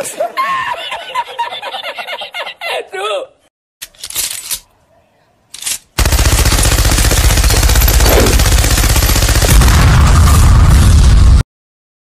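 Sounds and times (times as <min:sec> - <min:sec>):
machine gun firing: 0:06.0 - 0:10.6.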